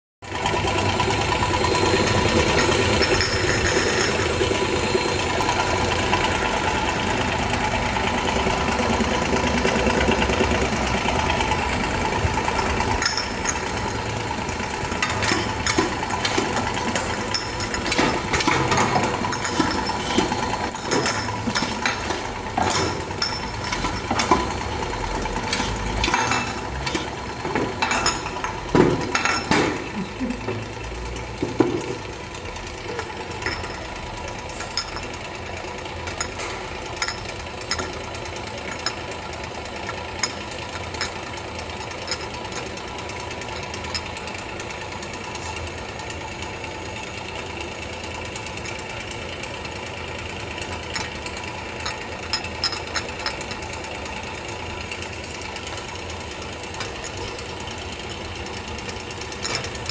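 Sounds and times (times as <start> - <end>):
labeling machine humming: 0.3 - 59.9
glass jars clinking: 2.4 - 4.4, 13.0 - 13.8, 15.1 - 24.6, 25.6 - 29.9, 32.9 - 33.9, 34.6 - 35.2, 36.1 - 39.1, 40.2 - 42.7, 51.8 - 53.4.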